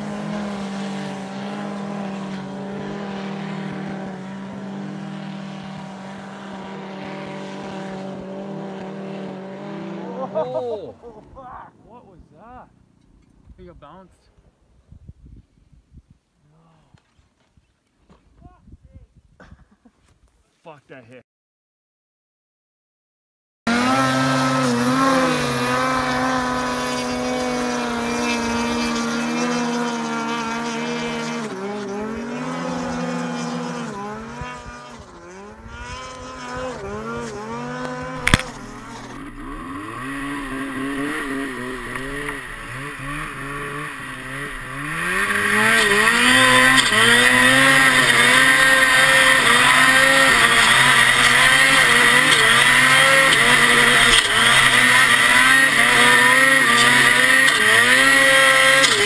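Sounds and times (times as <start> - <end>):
snowmobile engines revving: 0.0 - 12.8, 23.7 - 59.0
sharp click: 38.2 - 39.1.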